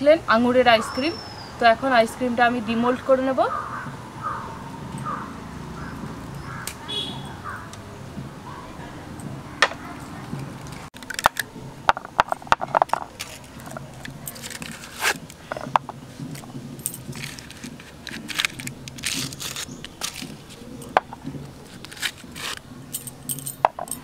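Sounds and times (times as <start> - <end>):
aluminium foil crinkling: 12.7 - 15.5, 16.3 - 22.6.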